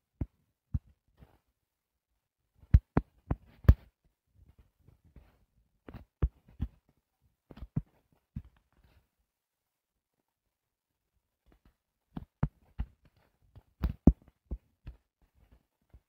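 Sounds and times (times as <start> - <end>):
taps on touchscreen: 2.7 - 3.9.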